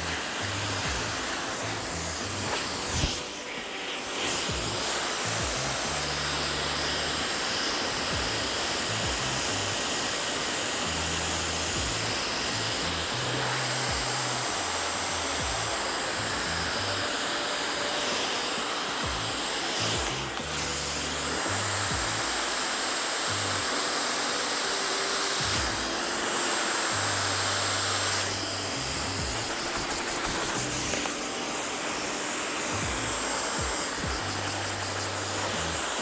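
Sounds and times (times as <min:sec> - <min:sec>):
hair dryer blowing: 0:00.0 - 0:36.0
background music with bass: 0:27.0 - 0:31.1, 0:32.7 - 0:36.0.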